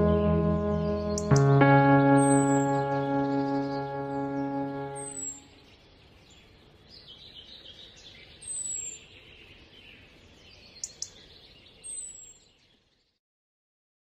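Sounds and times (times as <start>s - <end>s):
birds chirping: 0.0s - 12.8s
low outdoor hiss: 1.3s - 12.5s.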